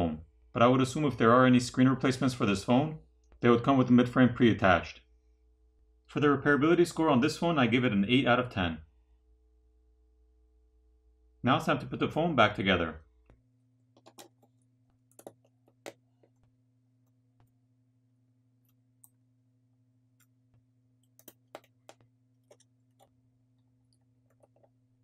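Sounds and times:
low steady hum: 0.0 - 25.0
small clicks and taps: 13.2 - 16.5, 20.2 - 24.8.

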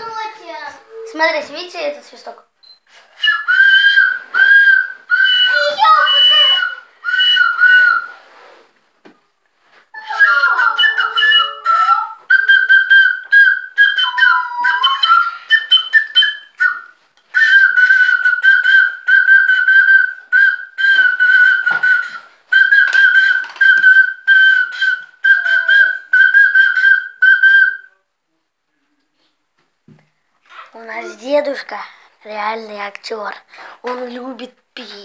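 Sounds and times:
plastic whistle blasts: 3.3 - 8.2, 10.0 - 27.9.

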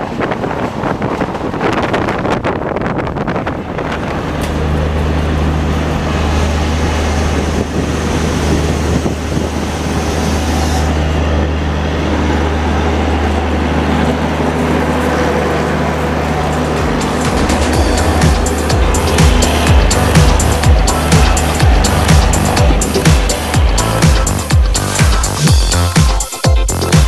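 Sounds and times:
train coach rolling with wheel clicks: 0.1 - 5.9
diesel generator humming: 2.4 - 26.8.

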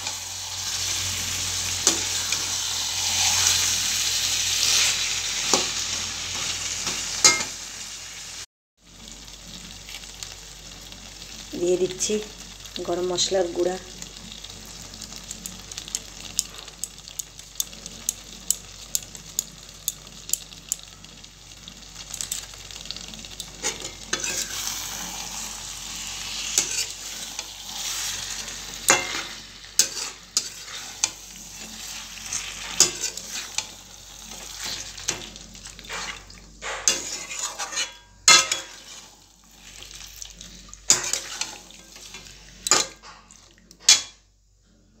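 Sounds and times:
food sizzling in a pan: 0.0 - 44.3
wooden spatula scraping a pan: 23.6 - 40.0, 40.9 - 43.4.

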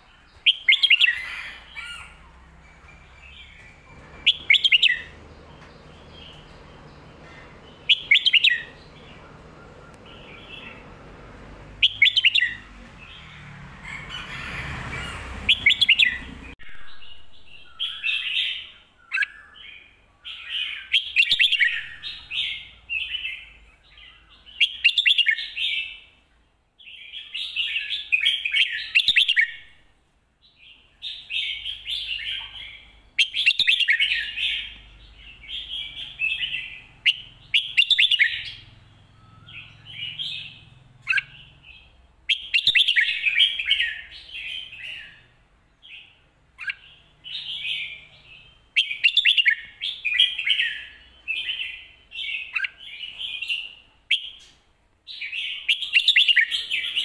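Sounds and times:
bulbul singing: 0.0 - 14.3, 15.0 - 26.1, 30.6 - 57.0.

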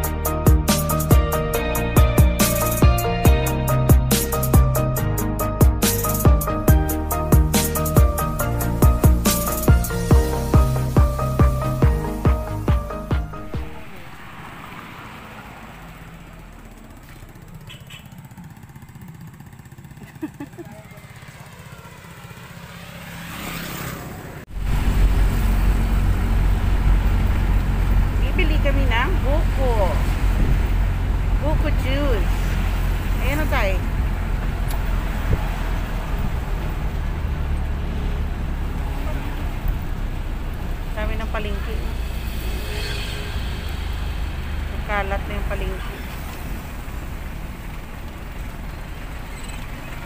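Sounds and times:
electronic music with beat: 0.0 - 13.8
vehicle engine running: 0.0 - 50.0
tyre and road hiss: 5.8 - 13.1, 13.7 - 16.0, 23.0 - 50.0.

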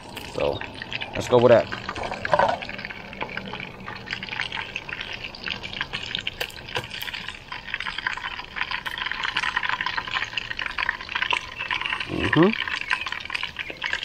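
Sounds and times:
fish frying in hot oil: 0.0 - 14.0.

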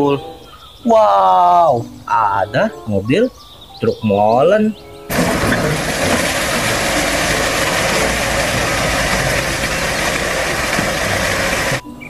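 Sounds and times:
heavy diesel machinery running: 5.1 - 11.8.

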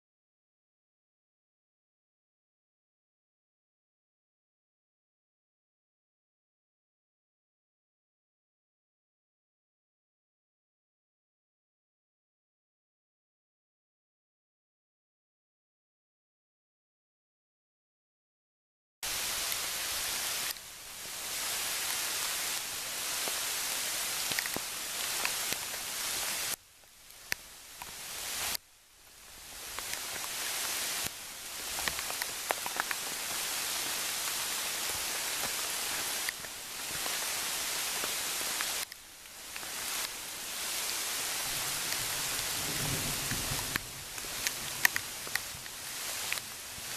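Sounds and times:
rain falling on leaves: 19.0 - 46.9.

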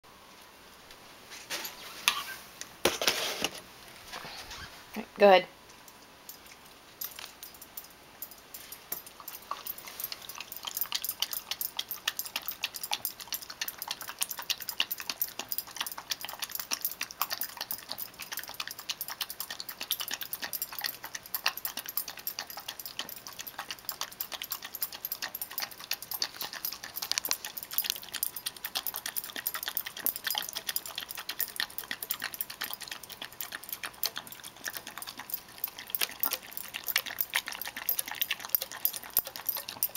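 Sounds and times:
tongue and teeth clicking on bowl: 5.8 - 39.9
dog lapping and smacking food: 8.9 - 39.9.

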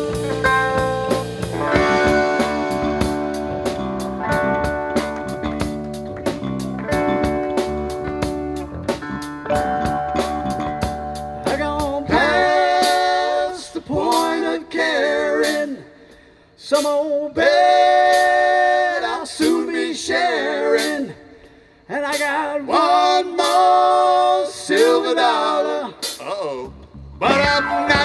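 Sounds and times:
blues-rock band playing: 0.0 - 14.5, 27.2 - 28.0
man singing: 11.4 - 15.9, 16.6 - 21.2, 21.9 - 28.0.

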